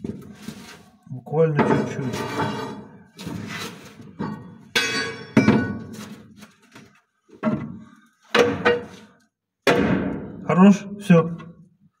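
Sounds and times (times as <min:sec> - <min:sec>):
heavy metal knocks and thunks: 0:04.1 - 0:05.9, 0:07.4 - 0:09.0, 0:09.6 - 0:10.4
ringing metal clang: 0:04.8 - 0:05.8.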